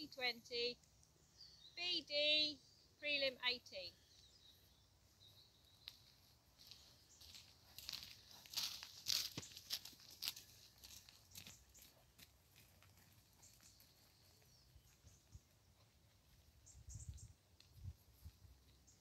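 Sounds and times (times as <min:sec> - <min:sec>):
horse hooves crunching: 0:04.1 - 0:19.0.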